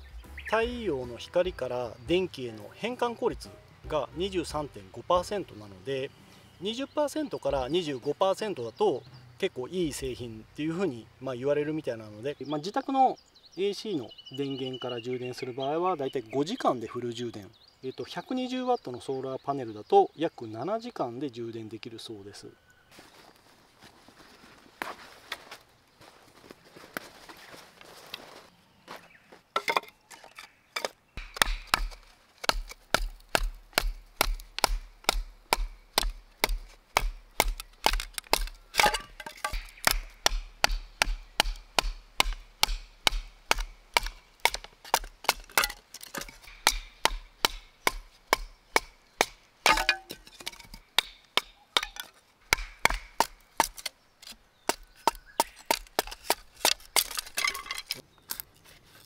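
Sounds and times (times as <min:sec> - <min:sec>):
baton knocking on knife through wood: 0:31.2 - 0:53.9.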